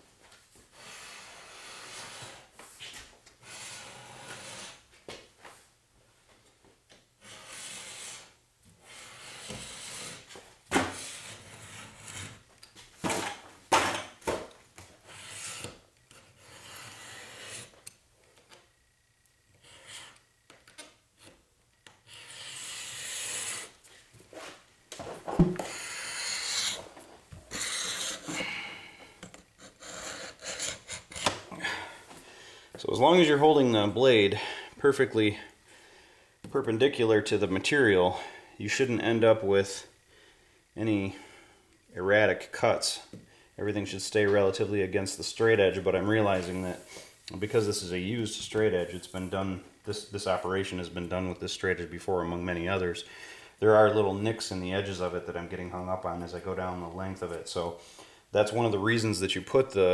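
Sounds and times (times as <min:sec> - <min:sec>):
knife scraping aluminium sheet: 0:07.2 - 0:10.3, 0:15.1 - 0:17.7.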